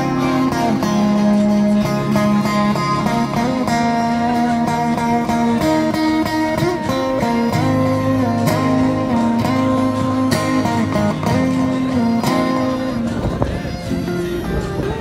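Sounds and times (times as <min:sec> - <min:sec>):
electric guitar melody: 0:00.0 - 0:15.0
steady low bass line: 0:00.0 - 0:15.0.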